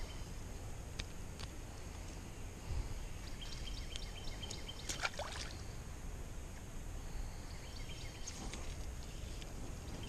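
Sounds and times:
fish splashing into water: 4.9 - 5.6.

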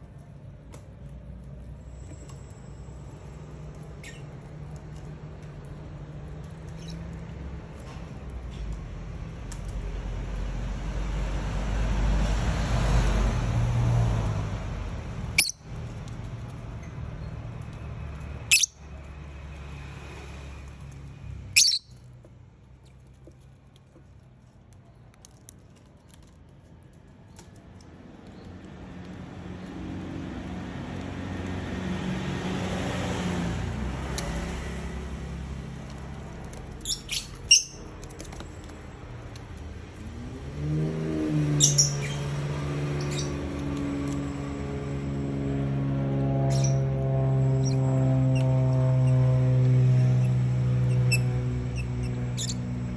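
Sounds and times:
traffic noise: 0.0 - 52.9
lovebirds squawking: 15.4 - 15.6, 18.5 - 18.8, 21.6 - 21.9.

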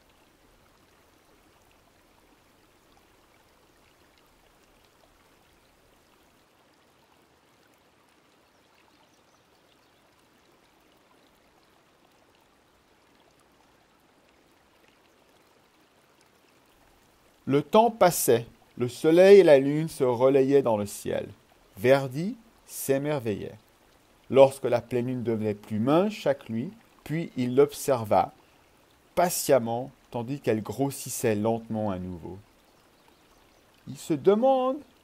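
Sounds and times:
faint even hiss: 16.5 - 35.0.

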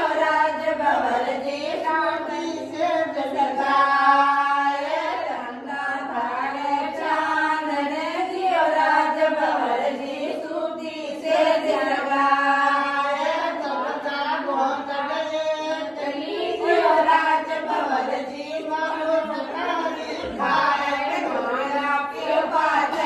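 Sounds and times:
women singing together: 0.0 - 23.0.

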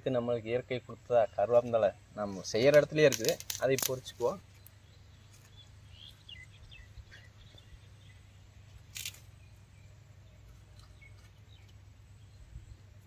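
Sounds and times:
sharp click: 2.6 - 4.0
high bird chirps: 4.3 - 8.3.

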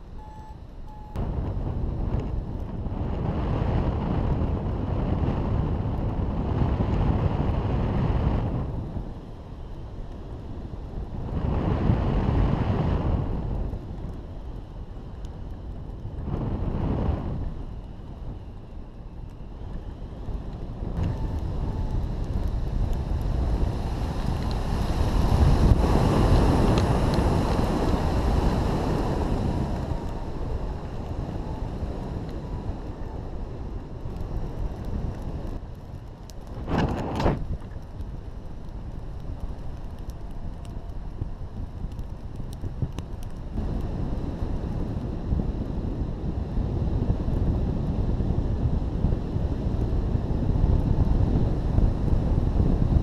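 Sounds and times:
wind rushing over microphone: 0.0 - 53.0.

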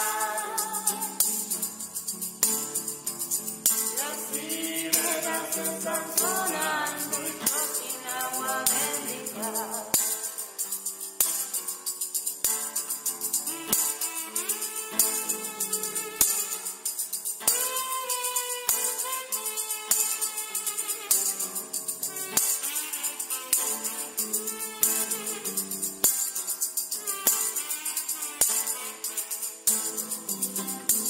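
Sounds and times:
person singing: 0.0 - 1.6, 3.9 - 10.2
acoustic guitar: 0.0 - 31.0
tambourine beat with jingles: 0.0 - 31.0.

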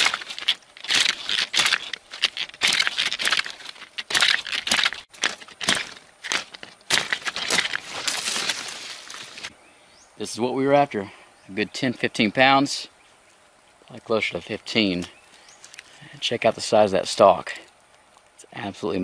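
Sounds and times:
leaves rustling: 0.0 - 9.6.

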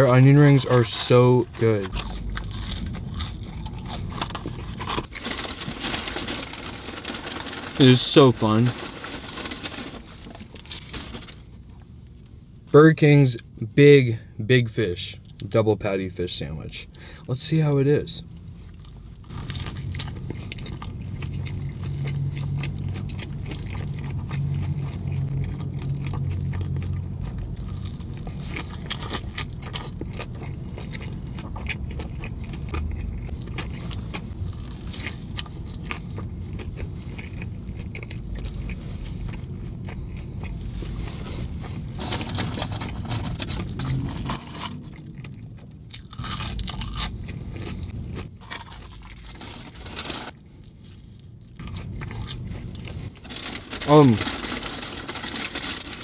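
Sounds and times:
chewing crunchy fried food: 0.0 - 12.1, 18.4 - 56.0
steady low hum: 0.0 - 56.0.

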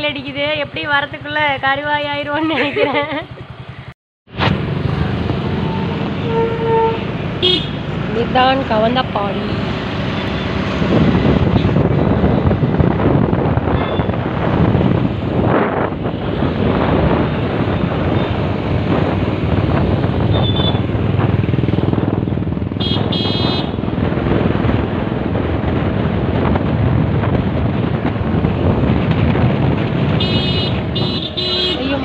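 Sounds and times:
scooter road noise: 0.0 - 32.0
vehicle horn honking: 5.5 - 7.8, 20.3 - 20.9, 22.8 - 23.8, 30.2 - 32.0
wind rushing over microphone: 7.0 - 32.0.

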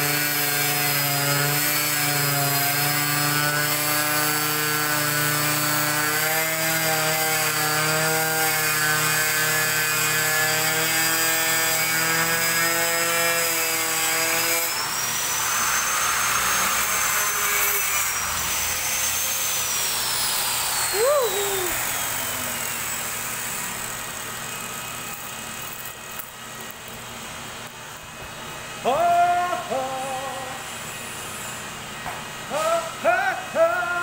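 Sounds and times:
angle grinder cutting acrylic: 0.0 - 28.2
grinder disc spinning down: 18.9 - 26.0.

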